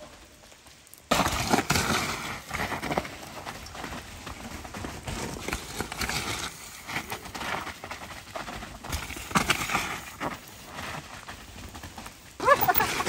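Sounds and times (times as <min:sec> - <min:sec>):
tyres sliding over mud: 0:00.0 - 0:13.0.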